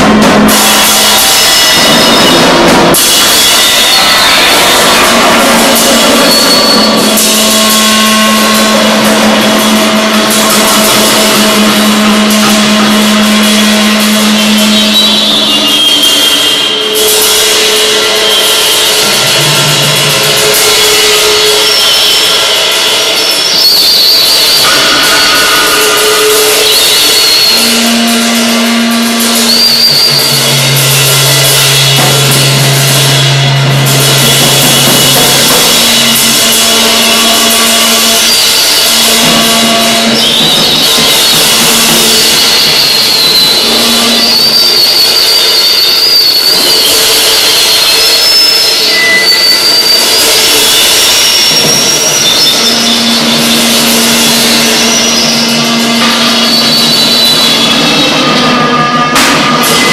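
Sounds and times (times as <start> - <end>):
steady low drone: 0.0 - 23.2, 24.6 - 44.3
amplified drums: 0.0 - 59.9
harsh noise music: 0.0 - 59.9
metal percussion with echo: 0.0 - 59.9
steady whistling tones: 0.0 - 59.9.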